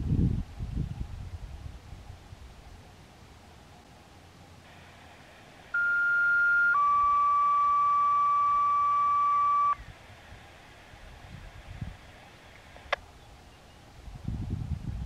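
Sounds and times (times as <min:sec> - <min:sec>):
faint radio hiss: 0:00.5 - 0:14.4
two-tone radio paging tones: 0:05.7 - 0:09.9.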